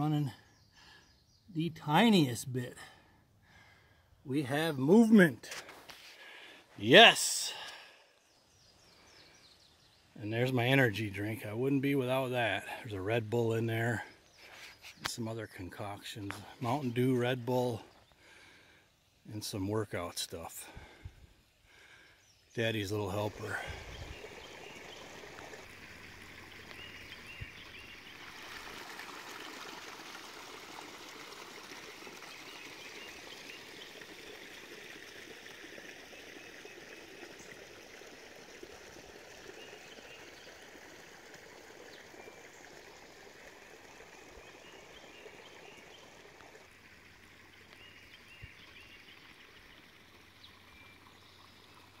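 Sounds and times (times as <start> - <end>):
water trickling: 20.6 - 52.0.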